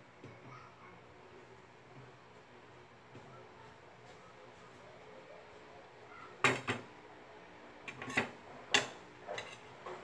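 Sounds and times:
utensils and cookware clattering: 6.4 - 6.9, 7.8 - 10.0.

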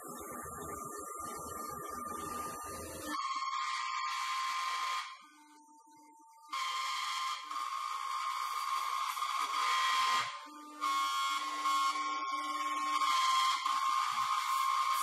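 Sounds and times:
cnc router spindle whine: 0.0 - 15.0.

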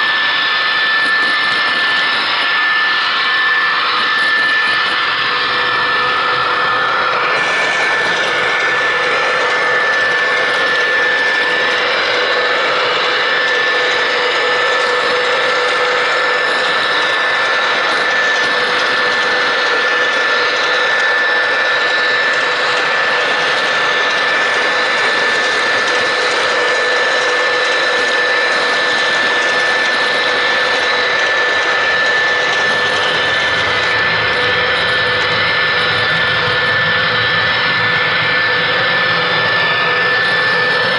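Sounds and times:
model train running on track: 0.0 - 40.9.

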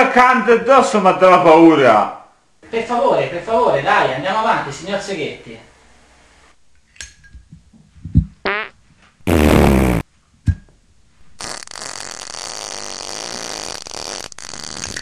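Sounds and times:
buzzing fart: 8.5 - 10.0, 11.4 - 15.0
squeaky fart: 8.5 - 10.0, 11.4 - 15.0
lighter hissing: 11.4 - 15.0.

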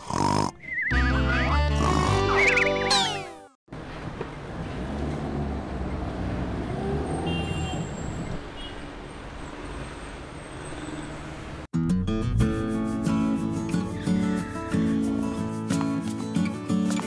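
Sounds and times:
road noise: 3.7 - 11.7, 12.8 - 16.4.

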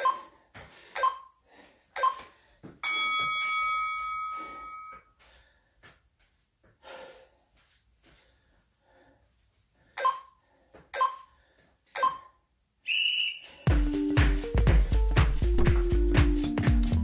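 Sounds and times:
timer long steady beep: 0.0 - 0.3, 1.0 - 1.3, 2.0 - 5.1, 10.0 - 10.3, 11.0 - 11.3, 12.0 - 12.3
timer short beeps: 10.0 - 10.3, 11.0 - 11.3.

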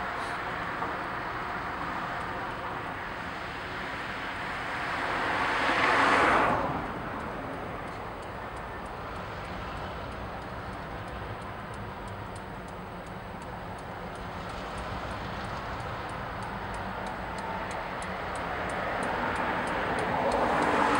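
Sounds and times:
low traffic rumble: 0.0 - 20.9
car passing close by: 0.1 - 9.8, 14.4 - 20.9
faint high ticking: 6.6 - 20.9.

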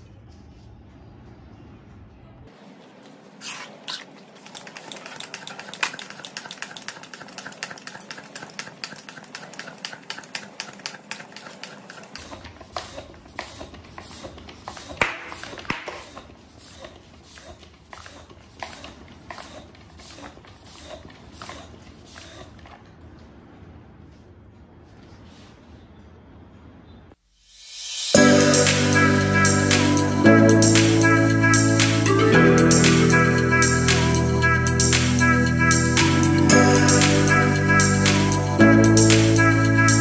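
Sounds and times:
hand pump hissing air: 3.4 - 22.6.

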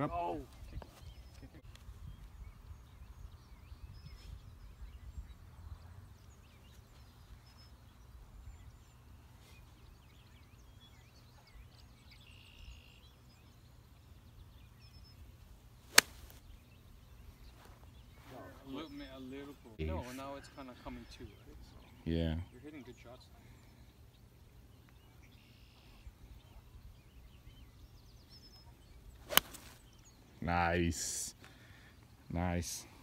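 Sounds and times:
golf club striking ball: 15.9 - 16.3, 29.3 - 29.7.

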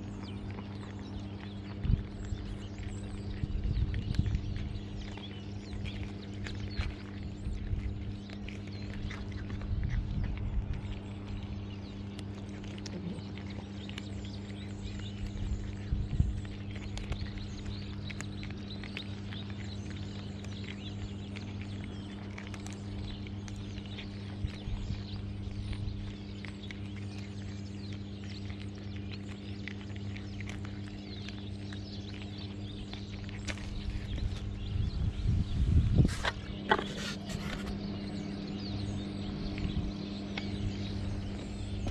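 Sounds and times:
cats crunching dry kibble: 0.0 - 41.9
steady low hum: 0.0 - 41.9.

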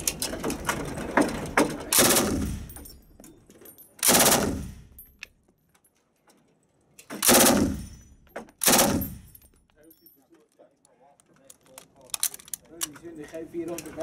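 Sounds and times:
machine gun bursts: 1.9 - 2.8, 4.0 - 4.8, 7.1 - 7.9, 8.6 - 9.3.

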